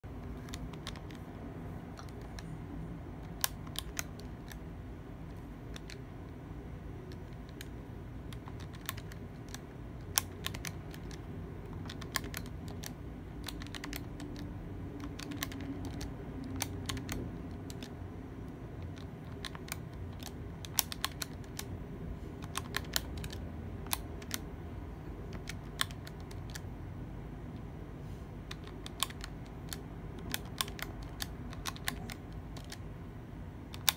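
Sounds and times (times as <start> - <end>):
low steady hum: 0.0 - 33.9
calculator keys clicking: 0.2 - 2.5, 3.2 - 4.6, 5.6 - 6.1, 7.0 - 18.0, 18.8 - 24.5, 25.3 - 26.7, 28.5 - 32.9.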